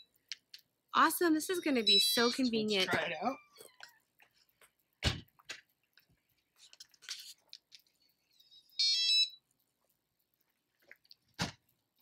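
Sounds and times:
thump: 0:05.0 - 0:05.3
door lock electronic beep: 0:08.8 - 0:09.4.

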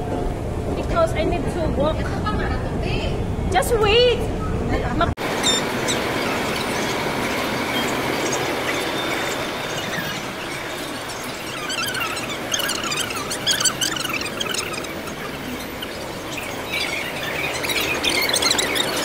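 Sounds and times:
escalator and concourse noise: 0:00.0 - 0:19.0
high wavering squeaks: 0:05.2 - 0:19.0.

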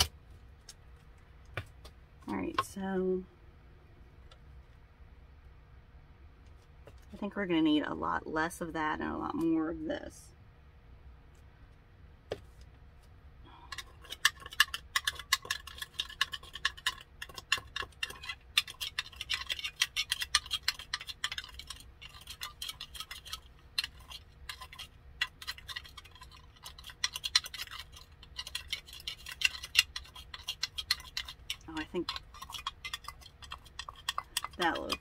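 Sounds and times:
glitter rattling in container: 0:13.8 - 0:35.0.

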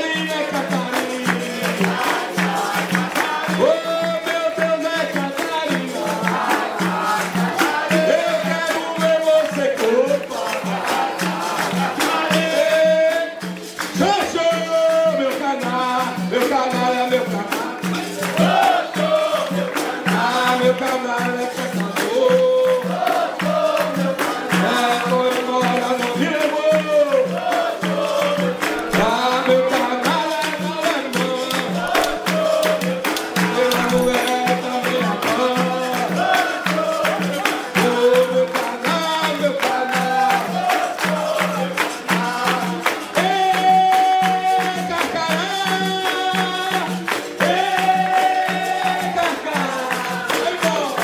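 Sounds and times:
group singing: 0:00.0 - 0:51.0
hand drum rhythm: 0:00.0 - 0:51.0
hand-clapping: 0:00.0 - 0:51.0
berimbaus playing: 0:28.8 - 0:37.0.

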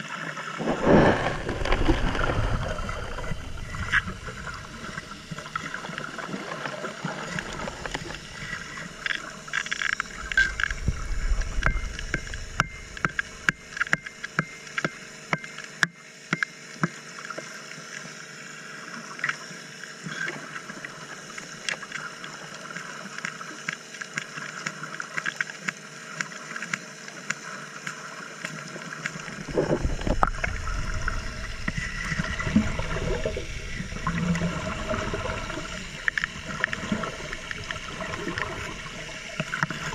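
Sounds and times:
exhaled air bubbles rumbling: 0:00.5 - 0:14.3, 0:29.2 - 0:39.9
dredge engine hum: 0:00.6 - 0:06.0, 0:07.3 - 0:13.8
metal bar scraping rock underwater: 0:00.6 - 0:06.0, 0:29.2 - 0:38.7.

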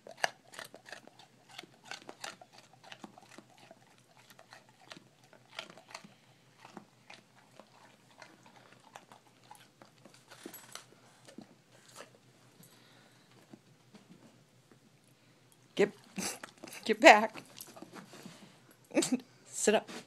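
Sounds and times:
dog chewing a hard treat: 0:00.0 - 0:12.7, 0:16.1 - 0:18.5.

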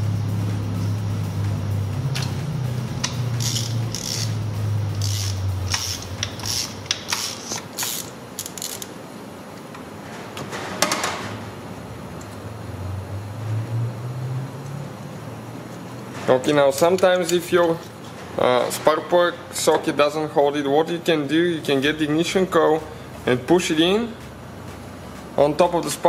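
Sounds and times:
ratchet wrench clicking: 0:03.0 - 0:08.9
ratchet wrench rattle: 0:03.0 - 0:08.9.

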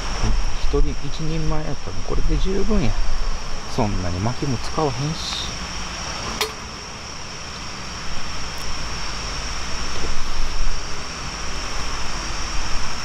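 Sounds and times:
wind buffeting microphone: 0:00.0 - 0:06.3
night insects chirring: 0:00.0 - 0:13.0.

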